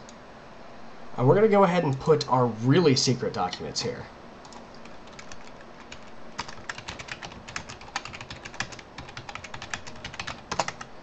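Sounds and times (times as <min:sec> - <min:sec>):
typing on computer keyboard: 0:04.5 - 0:10.9.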